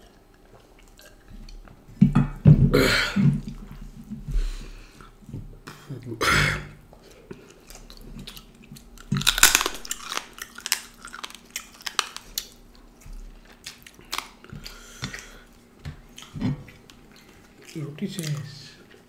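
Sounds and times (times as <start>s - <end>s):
chewing and biting meat: 7.0s - 19.0s.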